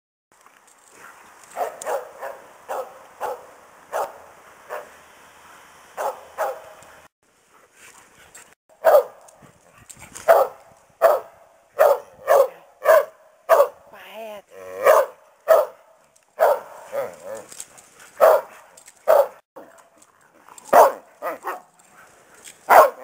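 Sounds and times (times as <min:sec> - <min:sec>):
dog barking: 0:01.6 - 0:05.0, 0:06.0 - 0:06.8, 0:08.8 - 0:09.2, 0:10.3 - 0:13.8, 0:14.8 - 0:17.2, 0:18.2 - 0:19.4, 0:20.7 - 0:21.7, 0:22.7 - 0:23.0.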